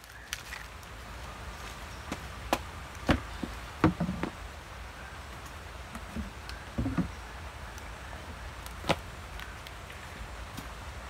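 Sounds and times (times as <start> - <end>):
knocks and rustles of laundry: 2.1 - 4.4.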